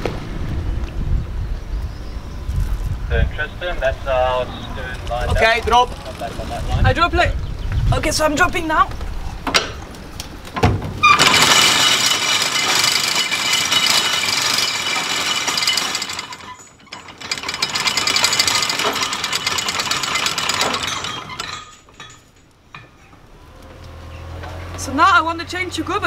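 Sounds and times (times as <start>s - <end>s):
anchor chain rattling: 3.8s - 7.2s, 11.0s - 23.3s.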